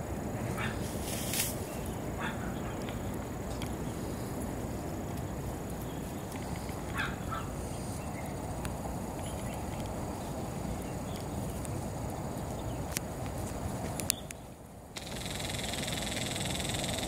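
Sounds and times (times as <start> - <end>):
low outdoor background noise: 0.0 - 17.0
high chirping call: 15.0 - 17.0.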